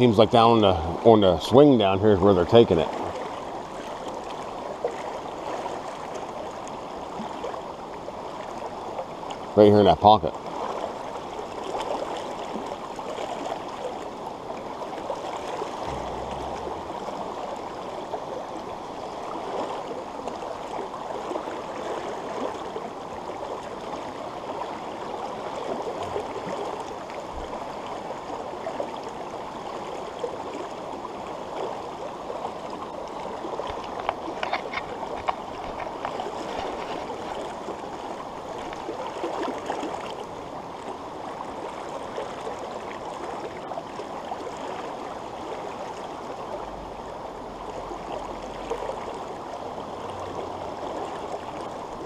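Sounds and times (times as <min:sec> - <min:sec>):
stream flowing over stones: 0:00.0 - 0:52.0
low thump: 0:15.8 - 0:17.9.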